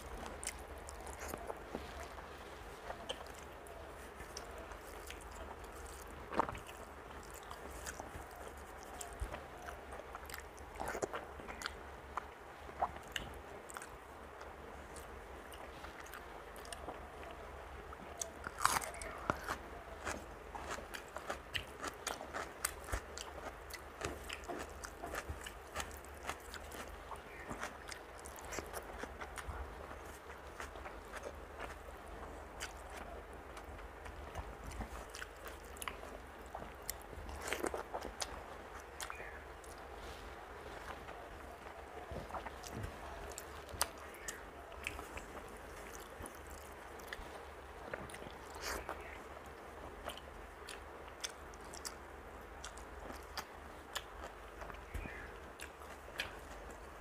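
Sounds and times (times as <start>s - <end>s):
wet chewing with smacks: 0.0s - 57.0s
crunchy bite: 18.2s - 31.8s.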